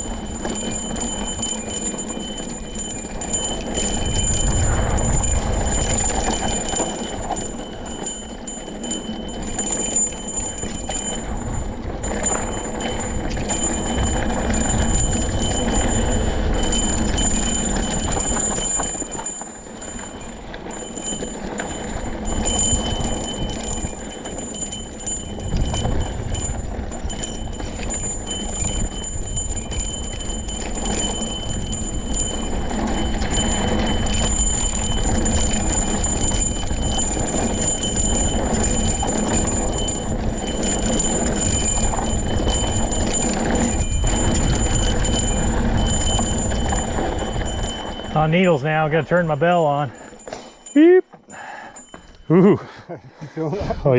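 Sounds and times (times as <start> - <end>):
high-pitched ringing tick: 0.0 - 52.6
wind on microphone: 3.1 - 7.4, 25.2 - 30.8.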